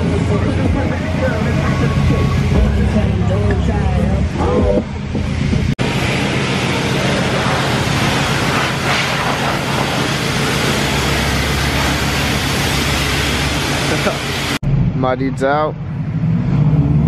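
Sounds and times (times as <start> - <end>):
low hum: 0.0 - 16.7
pressure washer spraying water: 5.2 - 14.6.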